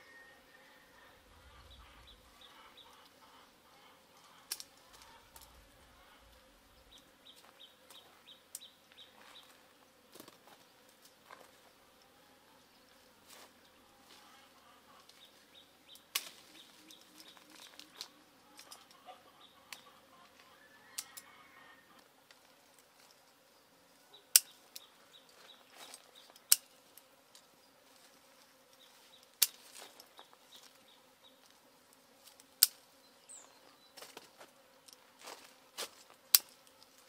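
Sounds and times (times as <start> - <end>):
hand shears snipping: 36.3 - 36.6.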